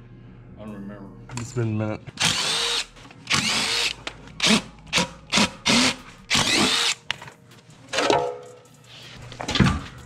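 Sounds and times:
cordless drill spinning up: 2.2 - 4.6, 5.3 - 7.0.

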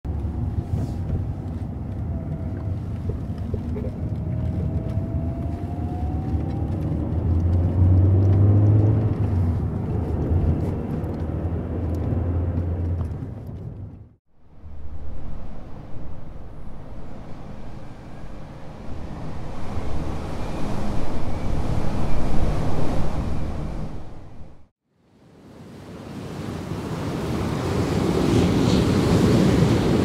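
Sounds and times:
road rumble: 0.0 - 24.7
car engine: 0.1 - 24.7
low drone: 14.3 - 24.7.

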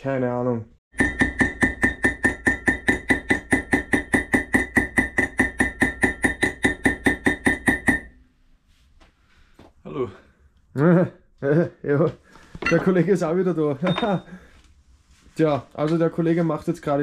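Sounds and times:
hammer striking steel: 0.9 - 8.2.

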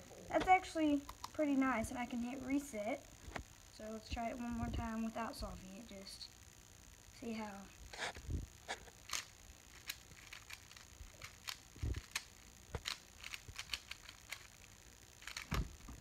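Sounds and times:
puzzle cube plastic clicks: 9.0 - 14.6, 15.2 - 16.0.

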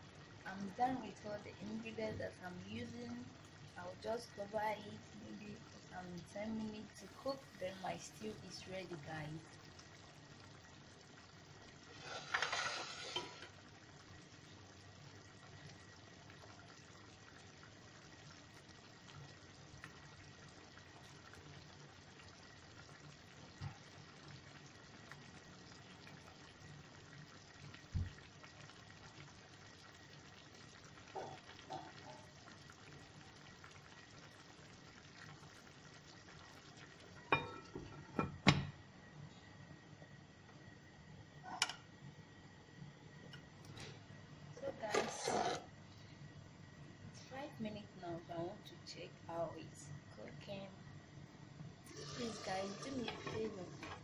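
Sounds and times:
stew simmering in a pan: 0.0 - 54.0
scrape in a pan: 11.9 - 13.6, 44.9 - 45.7, 51.9 - 54.0
glass lid clinking on pan: 37.3 - 38.6.

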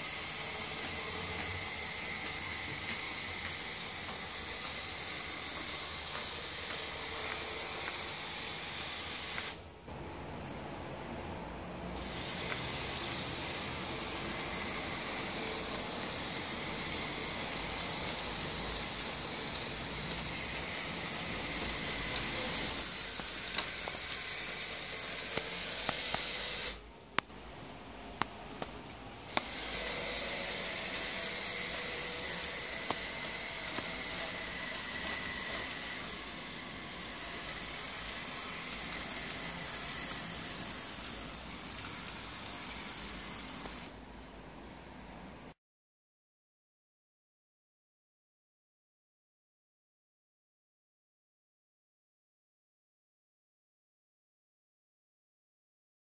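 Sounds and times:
model tram motor whirring: 0.0 - 10.2, 11.7 - 26.9, 28.8 - 44.0
sharp clicks: 18.9 - 27.3, 28.2 - 36.1.

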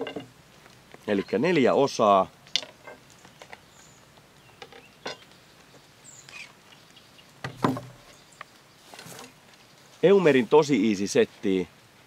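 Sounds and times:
case thumping on wooden table: 7.4 - 8.0.

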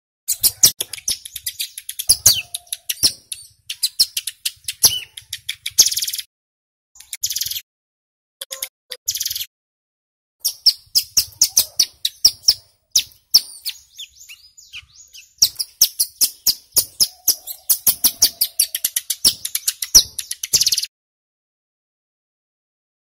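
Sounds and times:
bird singing rapid chipping notes: 0.3 - 6.3, 7.0 - 7.6, 8.5 - 9.5, 10.4 - 20.9.

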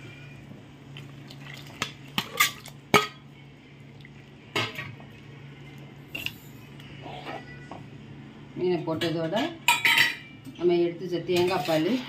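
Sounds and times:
steady low hum: 0.0 - 8.9.

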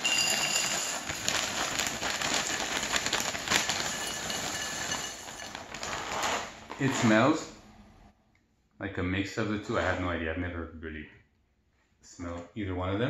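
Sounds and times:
cereal pouring into glass bowl: 0.0 - 6.2.

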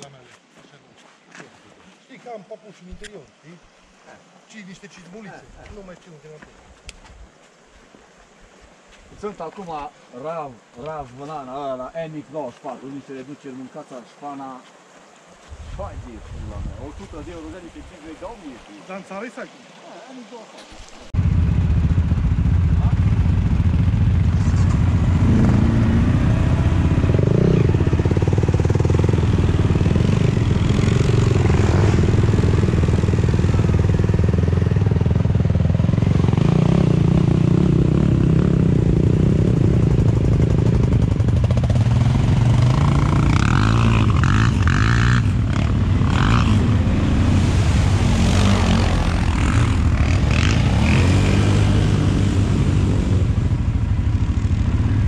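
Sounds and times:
atv engine running: 21.2 - 55.0.

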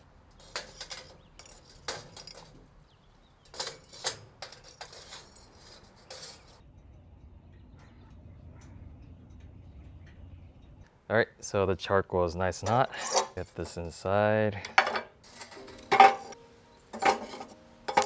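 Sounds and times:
tongs clinking on charcoal: 0.2 - 7.1, 12.6 - 18.0.

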